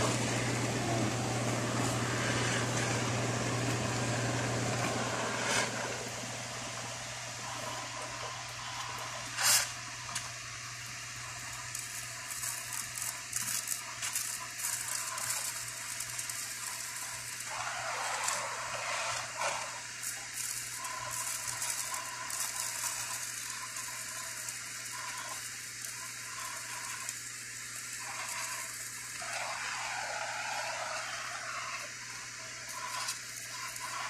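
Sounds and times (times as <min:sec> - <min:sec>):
molten metal crackling and popping: 0:00.0 - 0:17.6, 0:20.0 - 0:34.0
torch flame hissing: 0:00.0 - 0:34.0.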